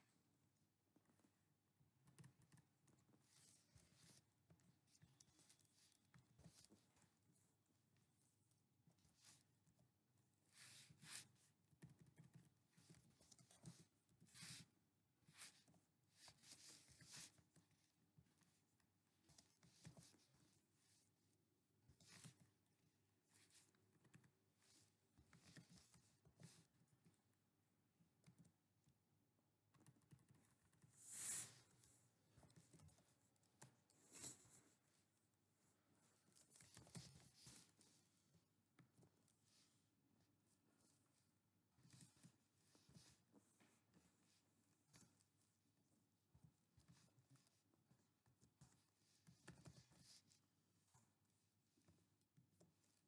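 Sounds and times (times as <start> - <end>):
keyboard typing: 29.7 - 30.9.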